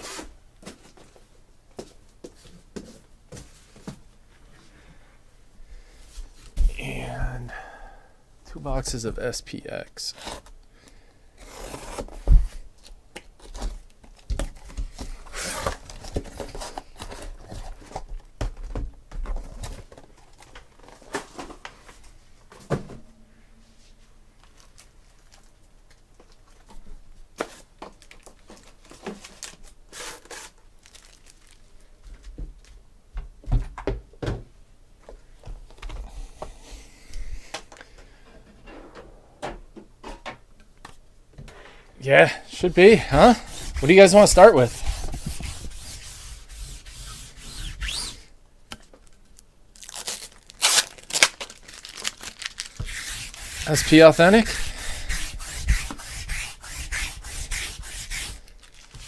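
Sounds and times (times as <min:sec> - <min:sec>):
packing tape tearing: 0:29.2 - 0:31.6, 0:49.3 - 0:54.1, 0:58.1 - 0:59.0.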